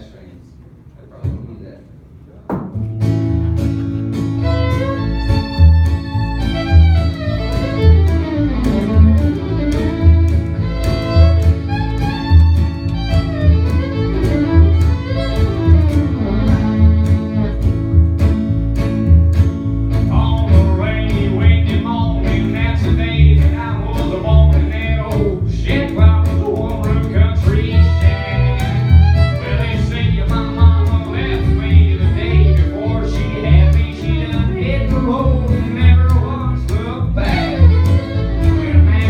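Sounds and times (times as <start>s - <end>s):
acoustic guitar: 2.6s - 39.0s
upright bass plucking: 2.6s - 39.0s
fiddle playing: 3.8s - 20.0s, 26.1s - 39.0s.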